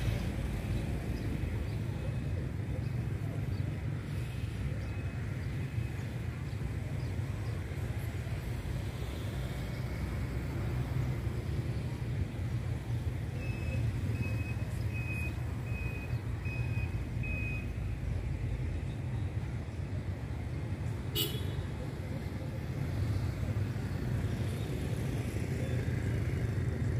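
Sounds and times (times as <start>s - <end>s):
street traffic rumble: 0.0s - 26.9s
vehicle warning beeper: 13.4s - 18.0s.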